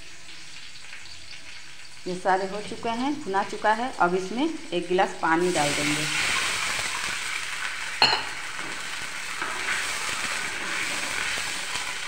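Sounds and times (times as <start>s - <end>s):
spices sizzling in hot oil: 0.0s - 12.0s
glass clinking on pan: 8.0s - 8.5s.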